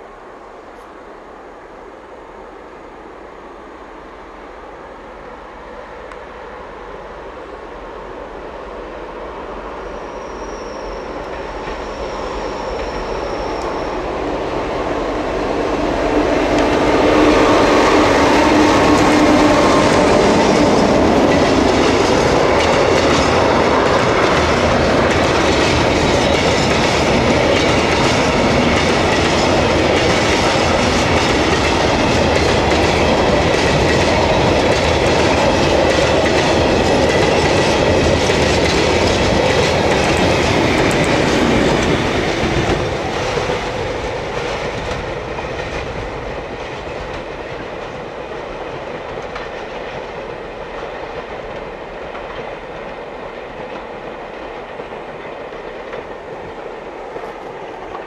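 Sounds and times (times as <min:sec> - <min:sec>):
diesel locomotive engine: 0:00.0 - 0:58.0
train wheels clattering over rail joints: 0:17.9 - 0:53.0.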